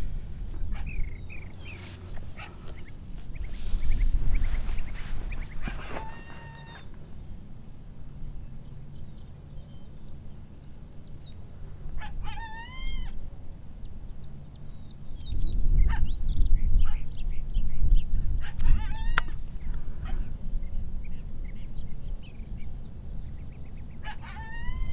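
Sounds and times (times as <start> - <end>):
high-pitched animal cries: 5.6 - 7.0, 12.0 - 13.2, 18.5 - 19.4, 24.0 - 24.9.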